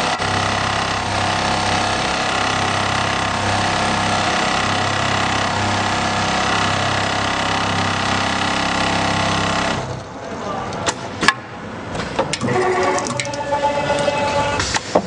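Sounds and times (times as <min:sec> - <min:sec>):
sewing machine stitching: 0:00.0 - 0:10.0.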